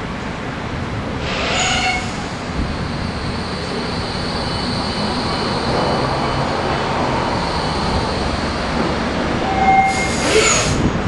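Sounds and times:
metro train wheels rumbling: 0.0 - 11.0
short steady high tone: 9.4 - 10.2.

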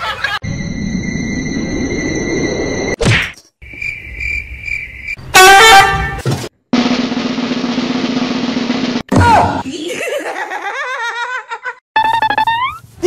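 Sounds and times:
loud honk-like horn blast: 5.3 - 6.2.

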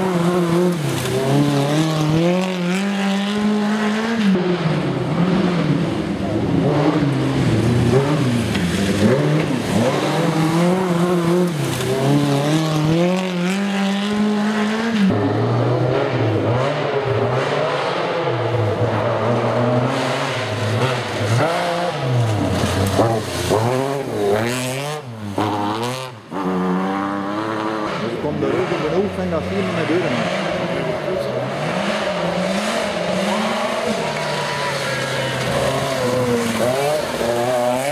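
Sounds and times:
rally car engines at full throttle: 0.0 - 37.9.

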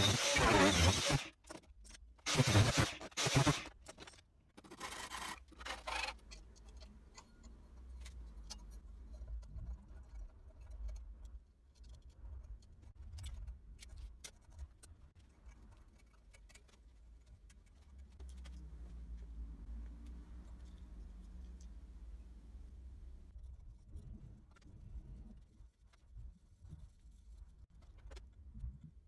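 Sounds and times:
harsh noisy bursts: 0.0 - 1.3, 2.3 - 3.7.

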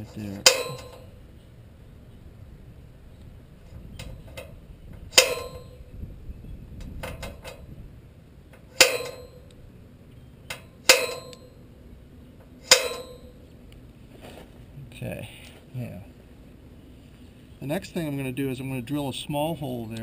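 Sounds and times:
center punch striking steel: 0.4 - 1.2, 5.1 - 5.9, 8.7 - 9.5, 10.5 - 11.6, 12.6 - 13.4.

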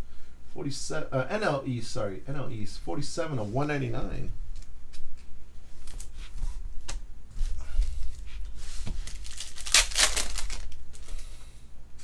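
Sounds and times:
foil wrapper tearing: 9.0 - 11.2.

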